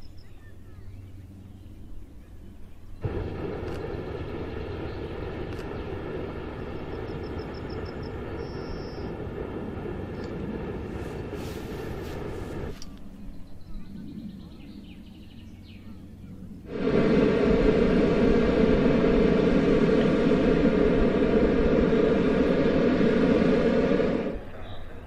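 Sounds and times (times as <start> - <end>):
bird chirping: 0.0 - 6.0, 12.8 - 16.6, 24.5 - 25.0
propane burner blast: 3.0 - 13.0, 16.6 - 25.0.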